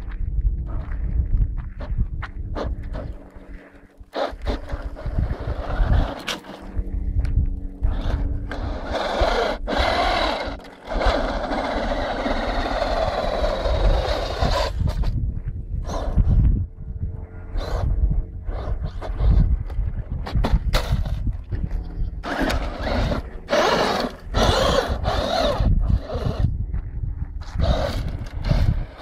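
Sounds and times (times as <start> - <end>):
tyres scraping through dirt: 2.5 - 6.8, 7.9 - 15.2, 20.2 - 26.4, 27.4 - 29.0
toy truck motor running: 4.1 - 6.7, 7.9 - 15.2, 17.6 - 17.9, 22.2 - 26.5, 27.4 - 29.0.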